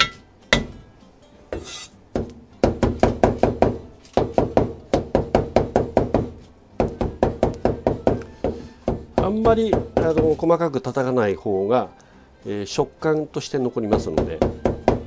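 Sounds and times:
knife chopping meat on a board: 1.6 - 10.4, 13.9 - 15.0.

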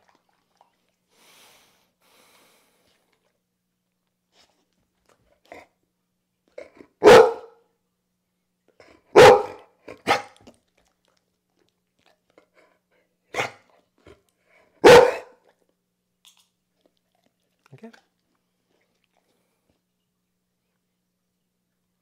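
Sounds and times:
dog barking: 7.0 - 7.6, 9.1 - 10.4, 13.3 - 13.6, 14.8 - 15.4.

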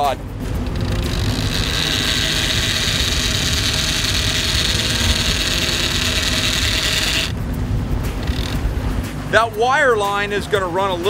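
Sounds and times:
fishing reel spool buzzing: 0.0 - 7.4, 8.2 - 8.7
boat motor drone: 0.0 - 9.3.

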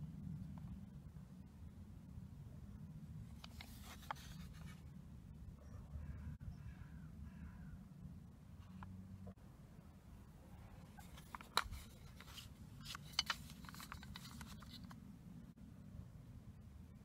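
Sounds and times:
plastic cassette case clicking: 11.0 - 15.0.

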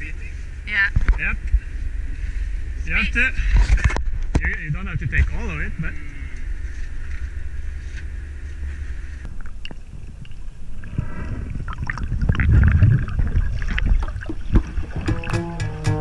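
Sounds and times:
water gurgling underwater: 11.4 - 15.4.

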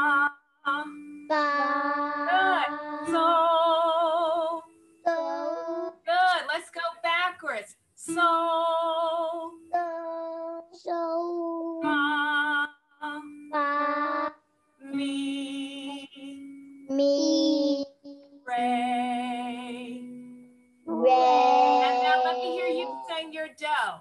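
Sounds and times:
child singing held notes: 1.3 - 3.7, 5.1 - 6.1, 9.7 - 12.0, 13.2 - 14.3, 16.9 - 18.2, 20.9 - 23.2.

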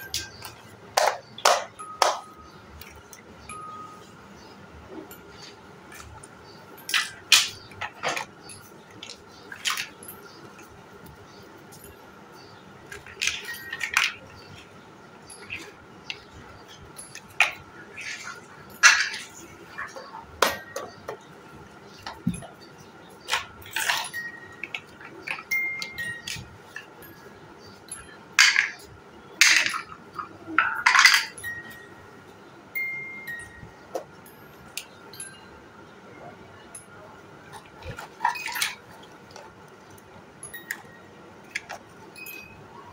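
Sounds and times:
plastic blocks clattering: 6.9 - 10.4, 12.9 - 14.7, 15.3 - 21.2, 23.2 - 26.9, 28.4 - 31.4, 37.5 - 39.6
plastic building blocks clacking: 12.9 - 14.7, 28.4 - 31.4.

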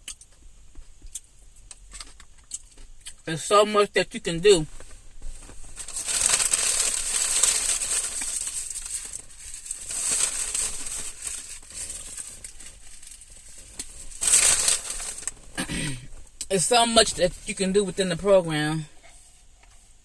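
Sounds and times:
paper packaging crinkling: 5.3 - 15.9.

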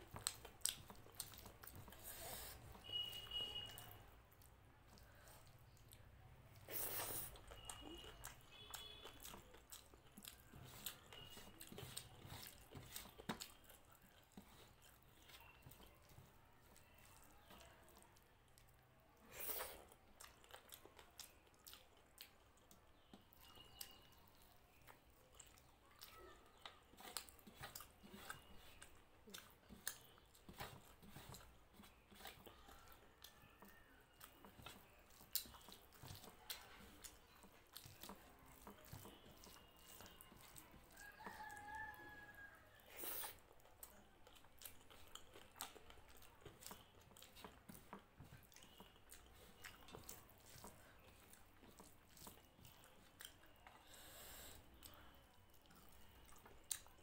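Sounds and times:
chewing: 0.0 - 57.0
fingers mixing rice on metal plate: 7.4 - 18.0, 23.2 - 42.6, 43.3 - 53.8
distant rooster crowing: 40.8 - 42.8.

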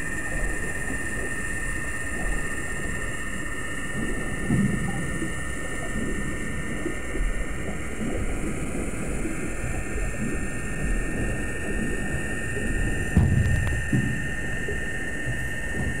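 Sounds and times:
machinery high whine: 8.5 - 16.0
machinery low rumble: 10.2 - 16.0.

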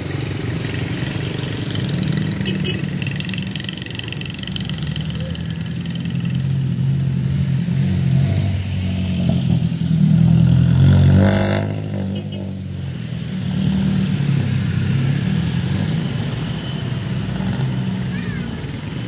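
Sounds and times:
car engines passing: 0.0 - 19.0
motorcycle engines approaching: 0.0 - 19.0.

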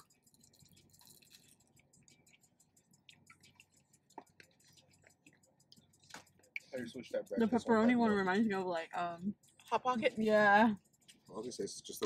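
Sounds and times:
mouth clicking sounds: 0.0 - 6.7
faint chewing: 0.0 - 6.8.

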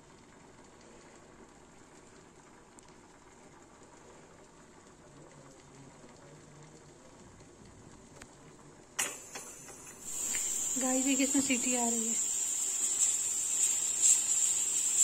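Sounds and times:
bubbling hiss in pressure cooker: 0.0 - 15.0
burst of escaping steam: 9.5 - 15.0.

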